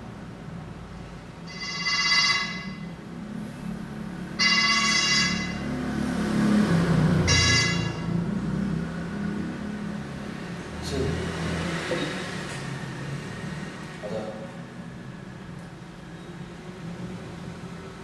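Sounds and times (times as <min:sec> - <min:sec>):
phone ringtone ringing: 0:01.5 - 0:03.0, 0:04.4 - 0:05.7, 0:07.3 - 0:08.1.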